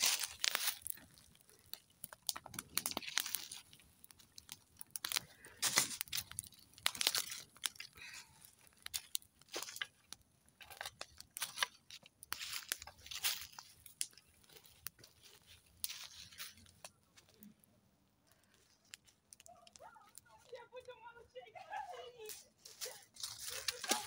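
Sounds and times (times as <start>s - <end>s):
twigs and leaves crackling in fire: 0.0s - 24.0s.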